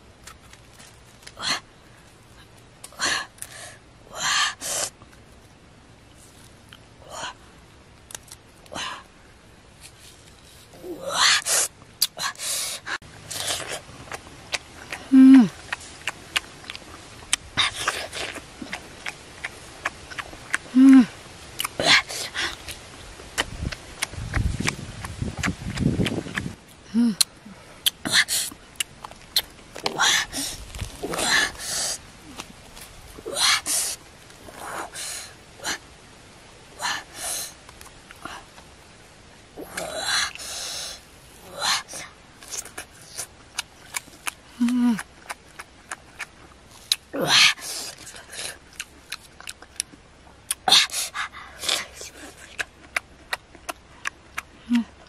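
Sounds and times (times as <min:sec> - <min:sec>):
person humming: 0:15.0 - 0:15.6, 0:20.7 - 0:21.2, 0:26.8 - 0:27.6, 0:44.6 - 0:45.1
wet fruit flesh tearing: 0:21.4 - 0:33.3, 0:42.4 - 0:54.5
chewing clicks: 0:51.6 - 0:54.5.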